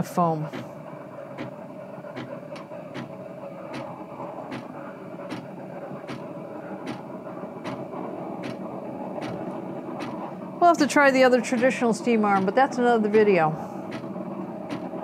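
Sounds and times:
steam wand hissing: 0.0s - 15.0s
regular clicks: 1.4s - 10.2s, 13.9s - 15.0s.

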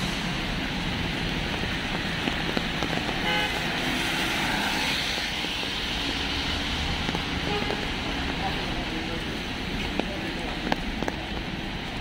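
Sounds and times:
cars passing: 0.0s - 12.0s
road noise: 0.0s - 12.0s
car horn toot: 3.2s - 3.6s, 7.4s - 7.9s.

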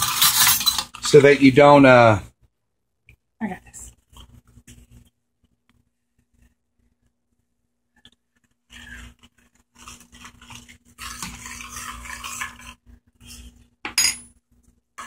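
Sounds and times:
metal spoon scraping cooking pan: 9.8s - 14.0s
metal clink on pan: 13.9s - 14.3s.

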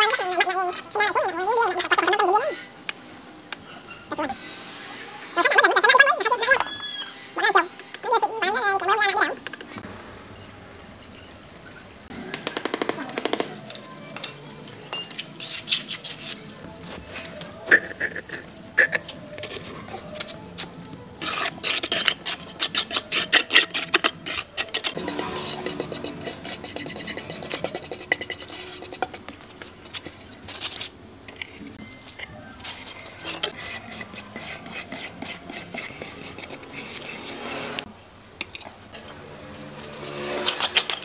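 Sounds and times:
trowel scraping cement: 21.2s - 31.6s, 32.6s - 37.9s, 39.0s - 41.0s.

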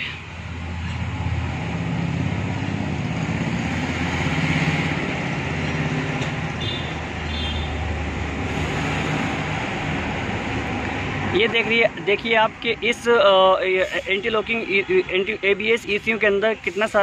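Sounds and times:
vehicle engine rumbling: 0.0s - 17.0s.

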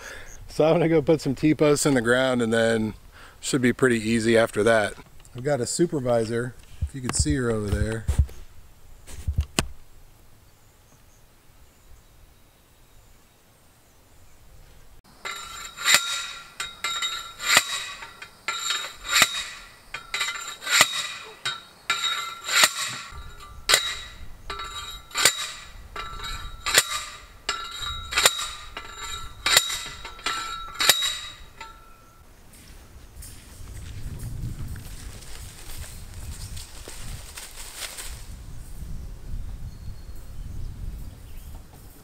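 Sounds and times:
post driver clanging on metal: 15.1s - 32.2s.

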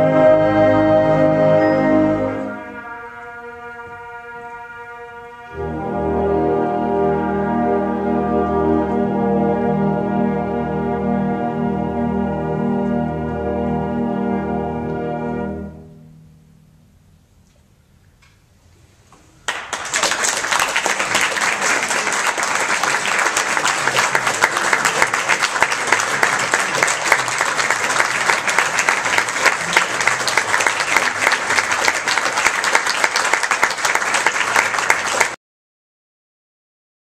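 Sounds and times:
audience applauding: 19.4s - 35.4s.

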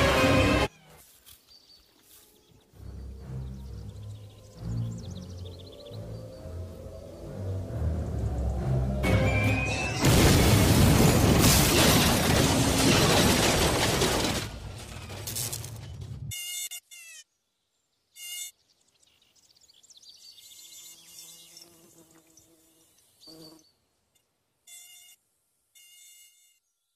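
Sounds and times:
music: 0.0s - 0.7s, 2.8s - 10.1s
loud crashing and smashing: 9.6s - 16.2s
housefly buzzing: 16.3s - 17.3s, 20.4s - 23.7s, 24.7s - 26.6s.

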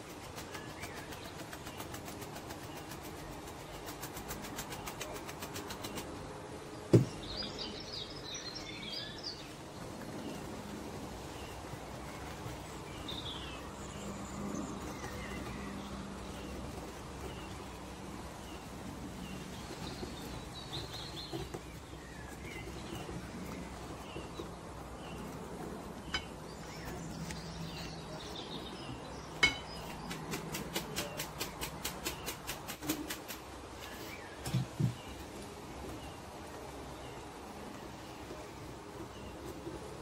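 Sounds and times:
sharp knock: 6.9s - 7.2s.

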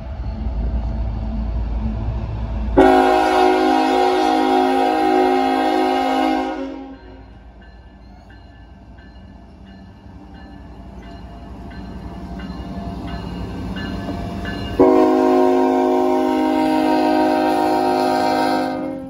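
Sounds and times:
locomotive engine rumble: 0.0s - 19.0s
locomotive horn chord: 2.8s - 7.2s, 14.8s - 19.0s
crossing bell dinging: 6.6s - 16.2s.

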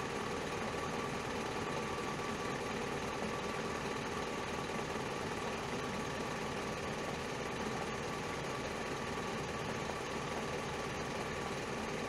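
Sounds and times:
faint steady whine: 0.0s - 12.0s.

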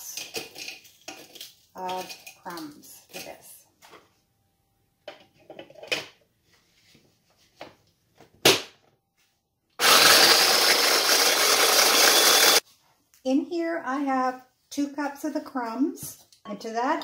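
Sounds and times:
electric food chopper grinding: 9.8s - 12.6s.

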